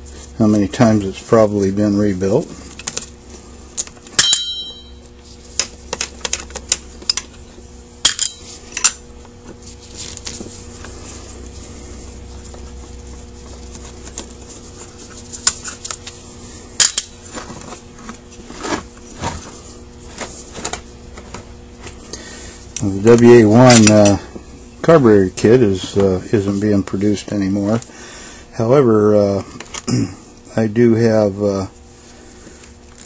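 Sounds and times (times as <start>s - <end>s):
bright ringing clink: 4.2s - 5.1s.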